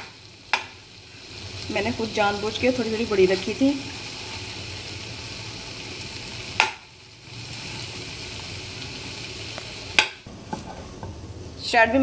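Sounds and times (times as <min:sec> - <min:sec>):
chicken sizzling in frying pan: 0:00.0 - 0:12.0.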